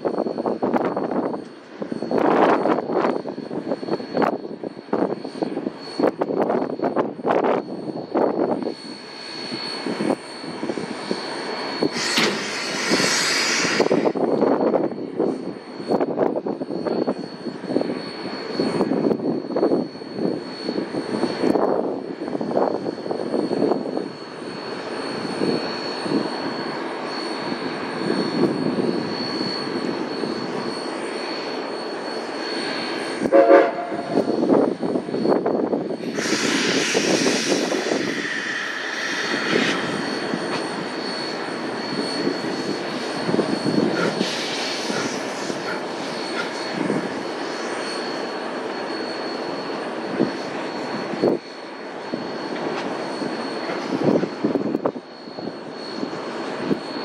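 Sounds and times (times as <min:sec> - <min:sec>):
steam locomotive whine and pulsing: 0:00.0 - 0:57.0
loud hiss of steam: 0:11.8 - 0:14.6, 0:36.0 - 0:47.8
steam whistle blast: 0:11.9 - 0:14.2, 0:33.2 - 0:34.3, 0:36.0 - 0:41.4.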